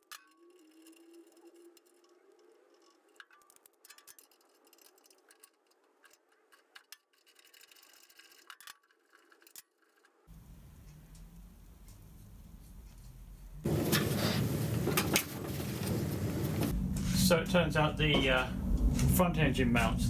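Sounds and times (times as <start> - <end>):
spanner clicking on metal: 0.0 - 10.1
low steady rumble: 10.3 - 20.0.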